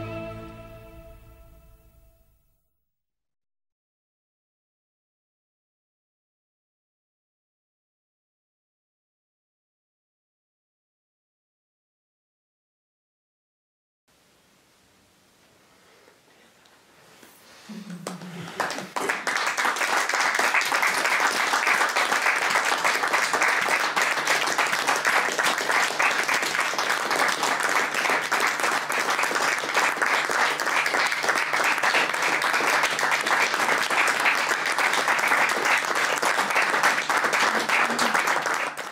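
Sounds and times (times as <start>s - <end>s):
audience applauding: 17.8s - 38.9s.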